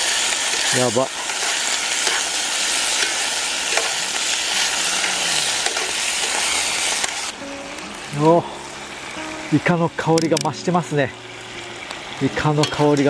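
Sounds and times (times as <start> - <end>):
food sizzling in a pan: 0.0 - 13.0.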